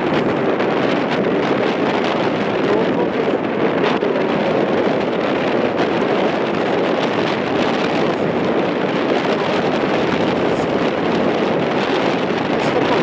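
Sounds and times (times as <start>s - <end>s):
wind blowing across microphone: 0.0s - 13.0s.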